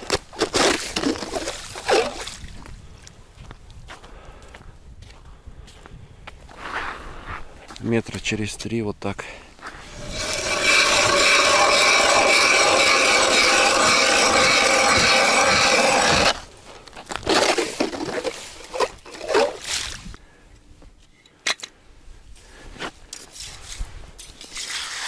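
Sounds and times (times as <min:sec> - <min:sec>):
ice chips scraping and knocking: 0:00.0 - 0:01.9, 0:09.8 - 0:19.8
ice auger grinding through ice: 0:00.4 - 0:02.2, 0:09.8 - 0:16.5, 0:17.2 - 0:19.6.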